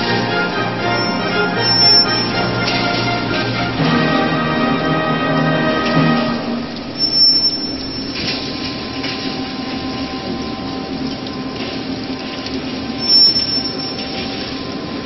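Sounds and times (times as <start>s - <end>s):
short high whistle: 0.9s - 2.8s, 7.0s - 8.3s, 13.0s - 14.1s.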